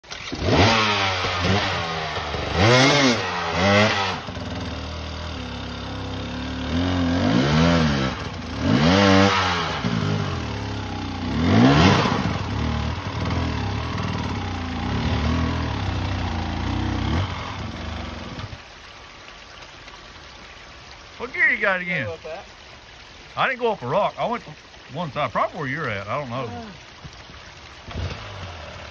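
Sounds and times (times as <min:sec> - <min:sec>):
dirt bike engine revving: 0:00.0 - 0:18.6, 0:27.8 - 0:28.9.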